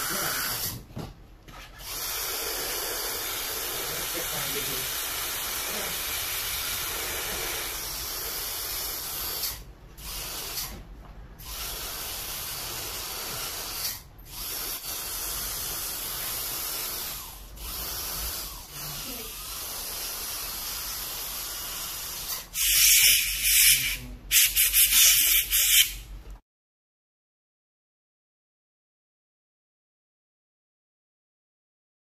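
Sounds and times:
dental equipment spraying hiss: 0.0s - 0.8s, 1.8s - 10.7s, 11.4s - 26.1s.

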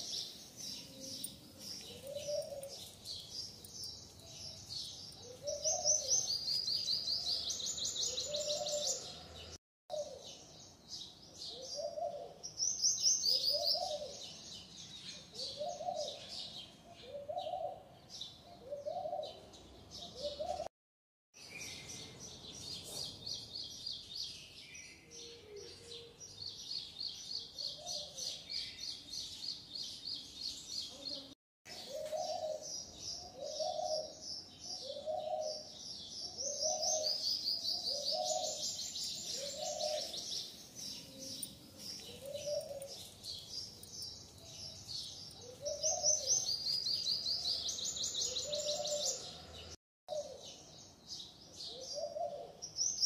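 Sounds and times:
birds chirping in high trills: 31.7s - 49.8s.

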